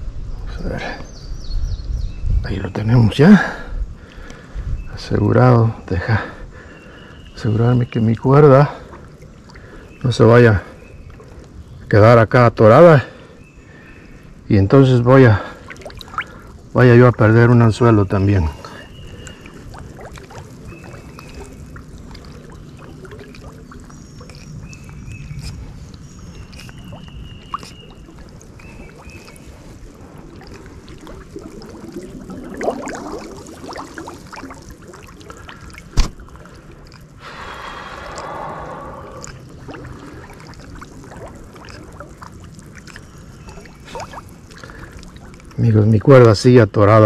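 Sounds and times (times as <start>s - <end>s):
water splashing around wading person: 15.3s - 46.4s.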